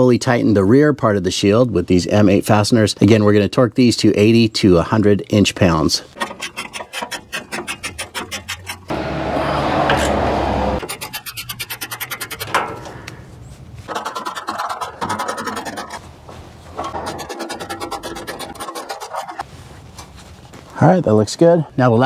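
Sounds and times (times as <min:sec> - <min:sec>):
steady rasping: 0:06.0 - 0:12.9, 0:13.8 - 0:19.5.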